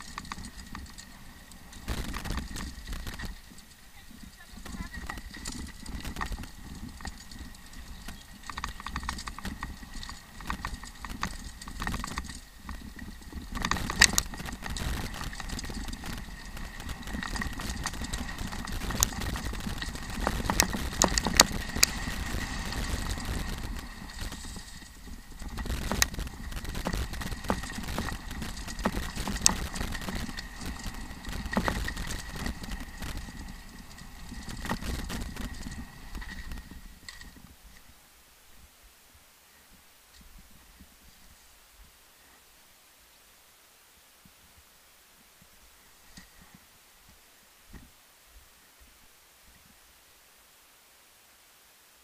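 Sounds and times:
wind rumble on microphone: 0.0s - 37.8s
bike rattling over rocks: 0.0s - 37.9s.

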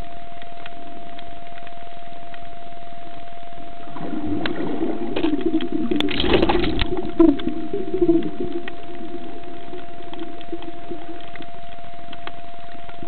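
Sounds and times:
thin constant tone: 0.0s - 13.0s
underwater hum: 0.0s - 13.0s
water sloshing: 3.8s - 13.0s.

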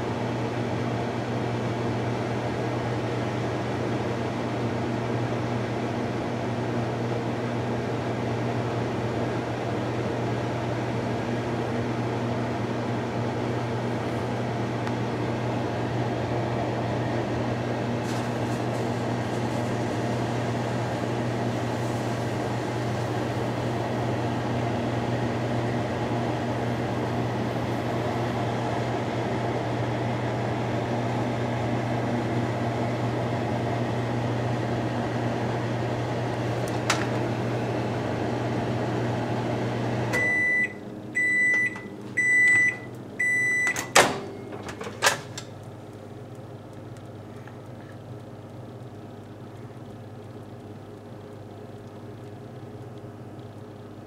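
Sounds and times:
microwave oven humming: 0.0s - 54.0s
oven door clicks: 36.7s - 37.2s, 43.6s - 45.5s.

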